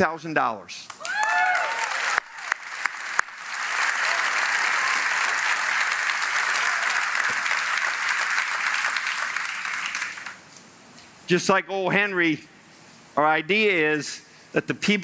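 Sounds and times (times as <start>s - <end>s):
crowd applauding: 1.0s - 10.4s.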